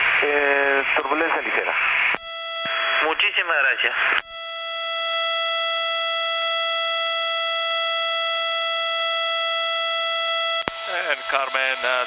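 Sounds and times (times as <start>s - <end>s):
high-pitched electrical whine: 0.0s - 12.0s.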